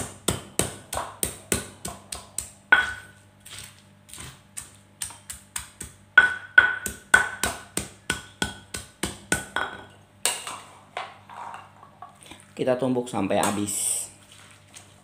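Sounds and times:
stone pestle pounding in mortar: 0.0s - 3.2s, 4.2s - 10.6s.

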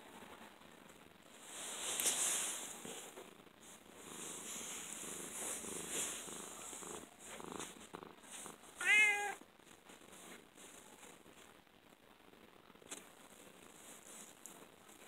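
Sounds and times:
cat purring: 1.3s - 15.0s
cat meowing: 8.8s - 9.4s.

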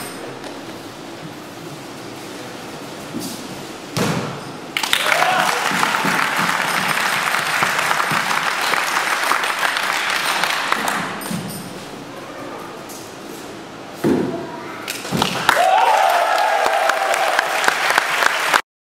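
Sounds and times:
audience applauding: 4.8s - 11.1s, 15.2s - 18.6s.

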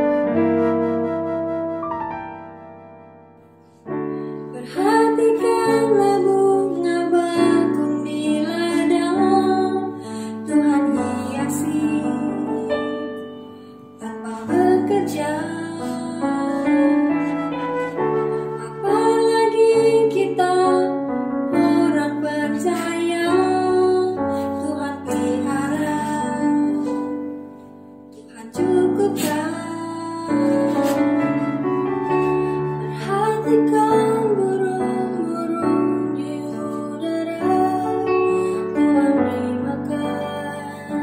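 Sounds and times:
piano accompaniment: 0.0s - 41.0s
woman singing worship song: 4.6s - 13.1s, 14.0s - 17.1s, 18.6s - 27.4s, 28.2s - 31.2s, 32.9s - 41.0s.

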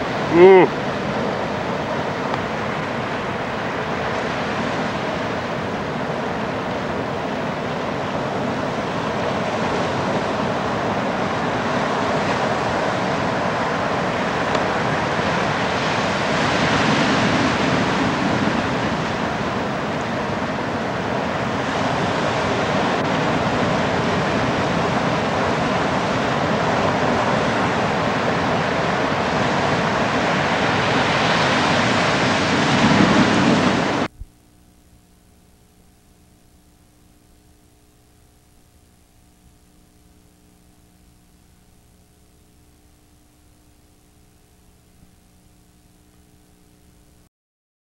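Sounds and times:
ocean surf breaking: 0.0s - 34.2s
wind on microphone: 2.6s - 34.3s.

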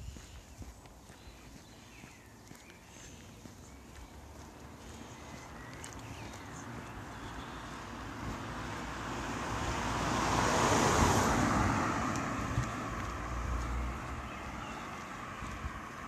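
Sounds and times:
car driving past: 3.8s - 16.0s.

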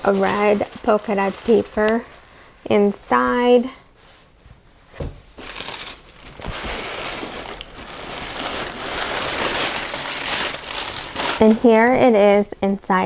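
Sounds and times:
tissue paper crinkling: 0.0s - 2.3s, 5.4s - 12.0s.

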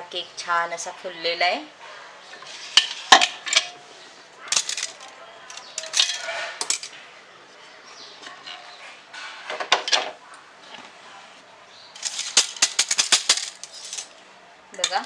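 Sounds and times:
metal kitchenware clatter: 2.3s - 3.8s, 4.4s - 7.1s, 8.2s - 10.2s, 12.0s - 14.2s.

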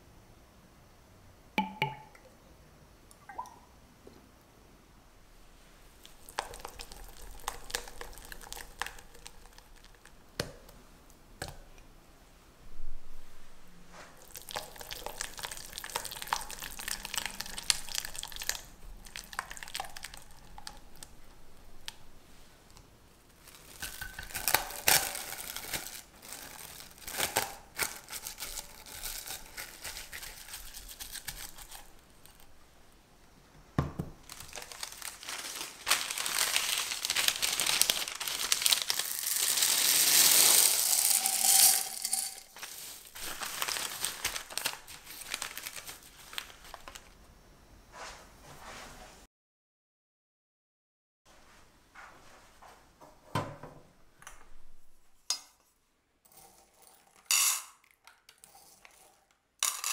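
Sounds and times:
cling wrap crinkling: 6.0s - 10.2s, 14.1s - 22.0s, 23.2s - 32.6s, 34.2s - 47.2s
dried beans pouring: 14.2s - 21.0s, 34.3s - 47.0s, 59.6s - 59.9s.

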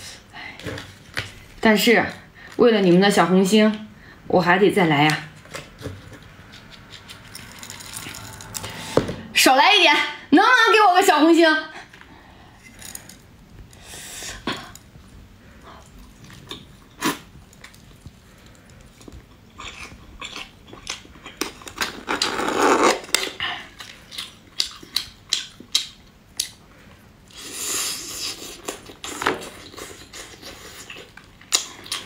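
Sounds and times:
mouth chewing noise: 6.0s - 8.8s.

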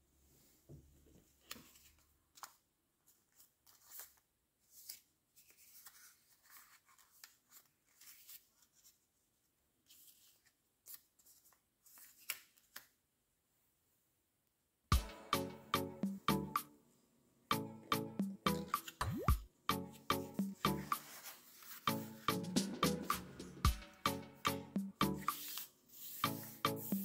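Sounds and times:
paper rustling and crinkling: 1.3s - 13.0s, 20.9s - 22.1s, 25.3s - 26.6s.

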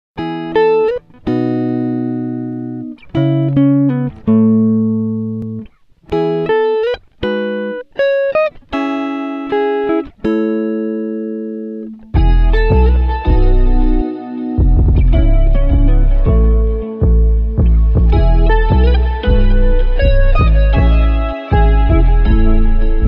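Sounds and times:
plucked guitar melody: 0.2s - 23.0s
heavy bass line: 12.2s - 23.0s.

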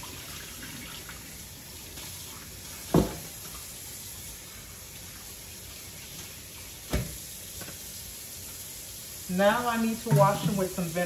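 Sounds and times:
tap running into sink: 2.9s - 3.5s, 6.9s - 7.8s, 10.0s - 10.7s.

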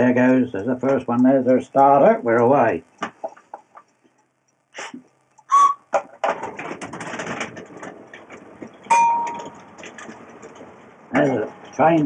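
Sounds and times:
whistle blast: 5.5s - 5.9s
model train rattling on track: 6.2s - 12.0s.

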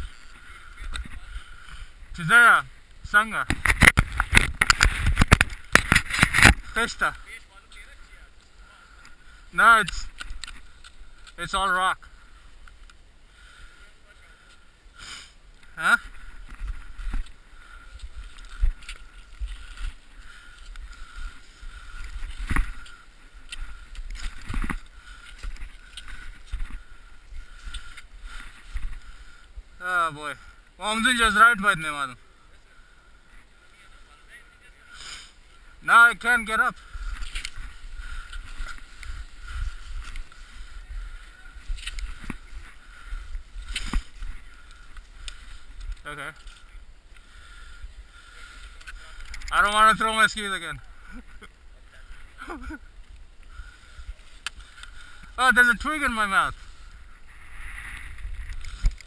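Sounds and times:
muffled rubbing on camera housing: 3.5s - 6.7s
wind rumble on microphone: 56.6s - 59.0s.

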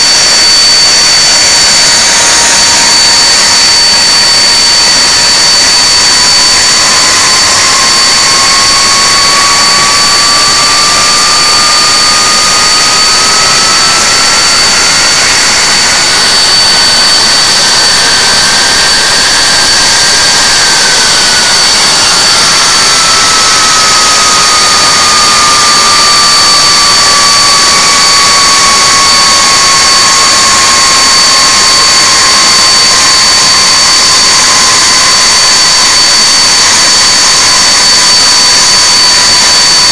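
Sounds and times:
jet engines roaring with whine: 0.0s - 39.9s
tone rising and falling in pitch: 2.0s - 31.7s.

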